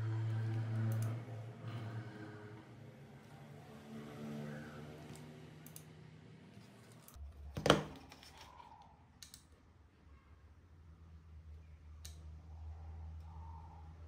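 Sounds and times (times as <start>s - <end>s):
light clicks of test probes: 12.0s - 12.4s.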